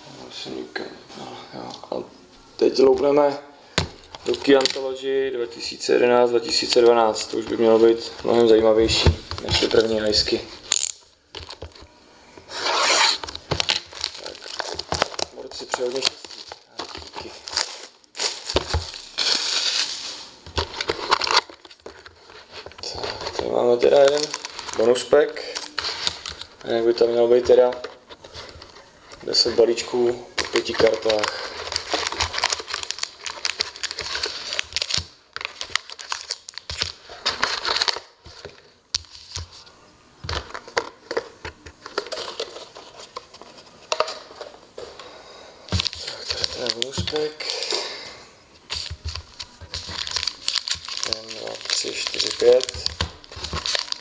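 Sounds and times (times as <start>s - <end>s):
cardboard rustling and scraping: 12.5s - 15.2s
foil packs crinkling: 12.5s - 39.5s, 45.7s - 48.1s, 48.7s - 54.0s.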